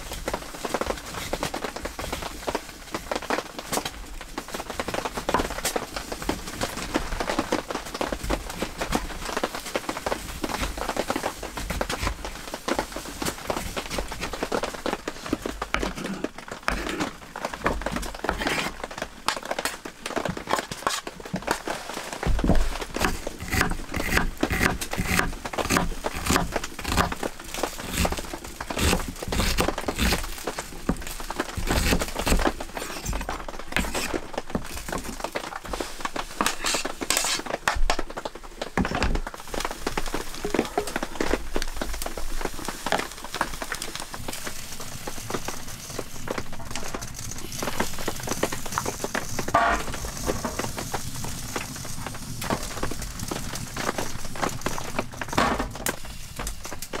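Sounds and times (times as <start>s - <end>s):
wood fire crackling: 0.0s - 57.0s
wooden spoon stirring vegetables: 20.8s - 38.2s
knife scraping on cutting board: 23.0s - 27.2s, 36.5s - 37.5s.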